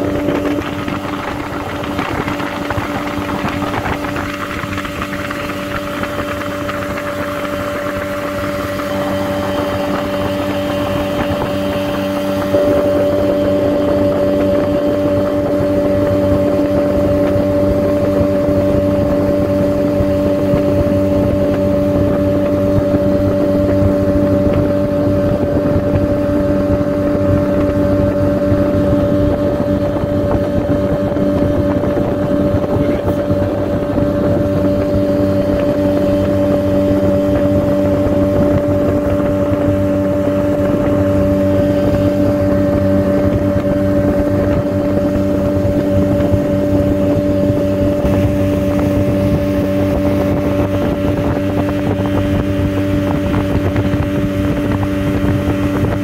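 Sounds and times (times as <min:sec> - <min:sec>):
rushing wind and water: 0:00.0 - 0:56.0
speedboat engine humming: 0:00.0 - 0:56.0.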